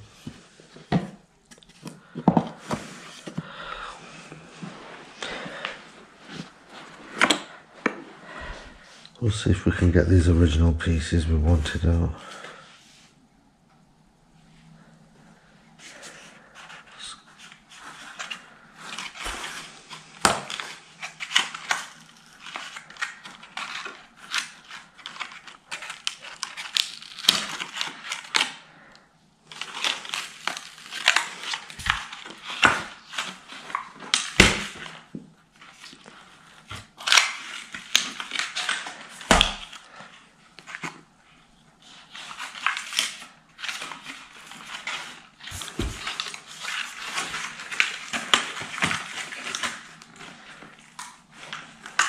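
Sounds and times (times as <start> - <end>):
cardboard crackling and tearing: 17.6 - 28.6, 29.5 - 40.0, 41.8 - 52.0.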